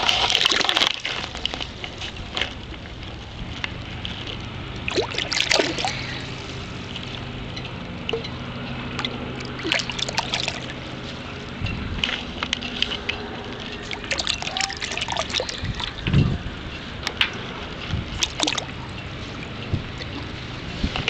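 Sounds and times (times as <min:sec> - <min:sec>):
small splashes: 0:00.0 - 0:01.7, 0:04.8 - 0:06.5, 0:09.0 - 0:10.8, 0:13.8 - 0:16.1, 0:18.1 - 0:18.8
water lapping against a net: 0:00.0 - 0:16.2, 0:17.7 - 0:21.0.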